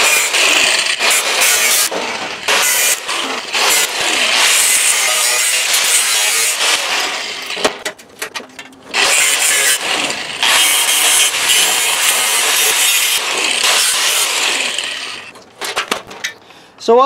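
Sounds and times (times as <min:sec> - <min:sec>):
cutoff wheel cutting sheet steel: 0:00.0 - 0:07.8, 0:08.9 - 0:15.4
sharp clicks and knocks: 0:07.5 - 0:08.9, 0:14.7 - 0:16.4.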